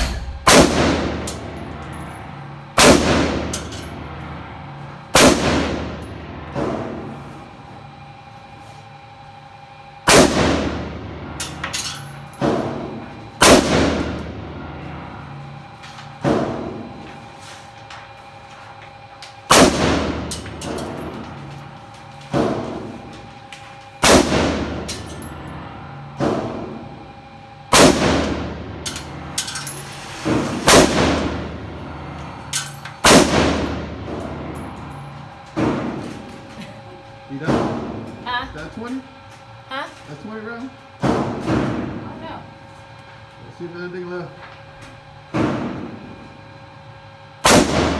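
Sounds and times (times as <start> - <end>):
rifle shots indoors: 0.0 - 2.0, 2.8 - 4.0, 5.1 - 6.1, 10.1 - 11.0, 12.4 - 14.3, 19.5 - 21.1, 24.0 - 25.3, 27.7 - 28.5, 30.6 - 31.5, 32.6 - 34.9, 47.4 - 47.9.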